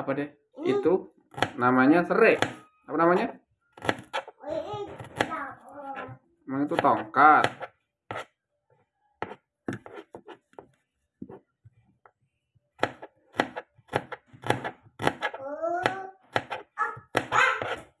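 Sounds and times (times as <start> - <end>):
knife chopping on plastic board: 1.3 - 1.6, 2.3 - 5.4, 6.6 - 8.3, 9.2 - 11.4, 12.8 - 17.9.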